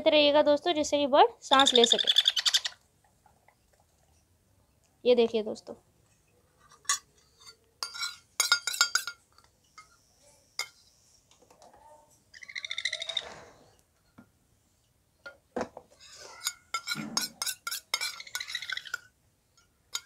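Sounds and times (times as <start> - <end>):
utensils clinking: 6.6 - 9.9, 16.1 - 20.0.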